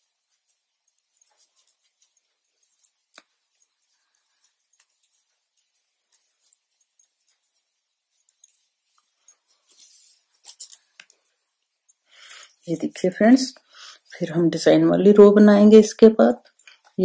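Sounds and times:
knitting needles clicking: 0:00.9 - 0:07.5.

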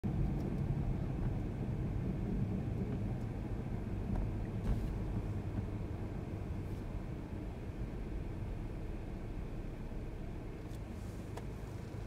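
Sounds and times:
car engine rumble: 0:00.0 - 0:12.0
road noise: 0:00.0 - 0:12.0.

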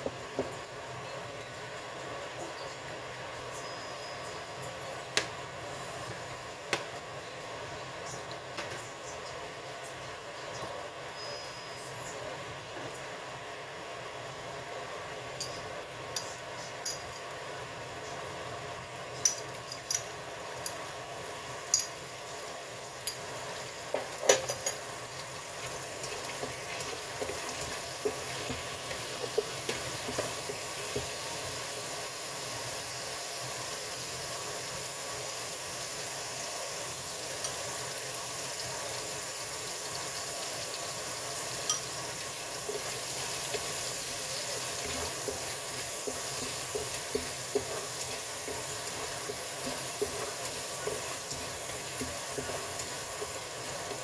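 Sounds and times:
oil sizzling in a wok: 0:00.0 - 0:54.0
spatula stirring: 0:23.0 - 0:32.0, 0:41.4 - 0:54.0
utensils clinking: 0:23.9 - 0:24.9, 0:41.6 - 0:54.0.

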